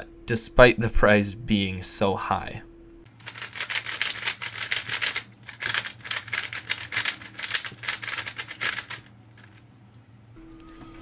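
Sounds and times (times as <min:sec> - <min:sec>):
puzzle cube plastic clicks: 0:03.2 - 0:09.6.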